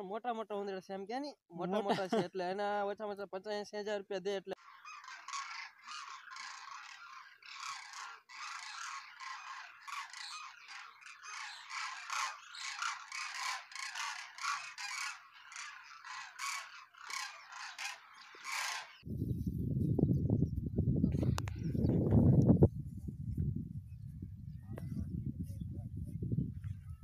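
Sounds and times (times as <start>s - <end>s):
flock of cranes calling: 4.6s - 19.1s.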